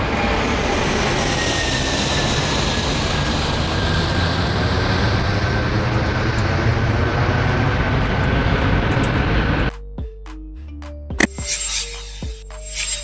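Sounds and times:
jet aircraft passing overhead: 0:00.0 - 0:09.7.

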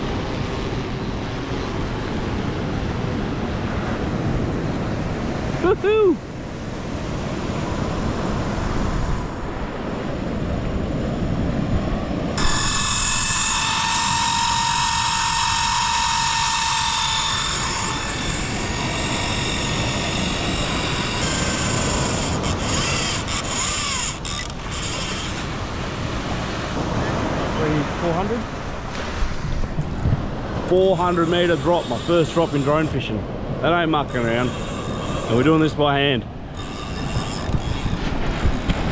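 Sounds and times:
wind: 0:00.0 - 0:38.9
fishing reel whining: 0:12.4 - 0:25.5, 0:30.9 - 0:33.1, 0:34.1 - 0:35.7, 0:36.5 - 0:38.8
surf: 0:25.1 - 0:34.5.

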